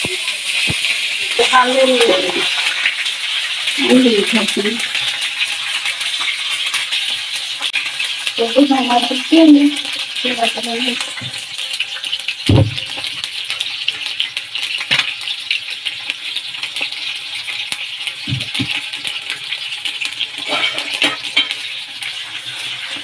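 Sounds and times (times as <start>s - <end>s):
fish sizzling in hot fat: 0.0s - 23.0s
low thumps: 12.5s - 12.9s.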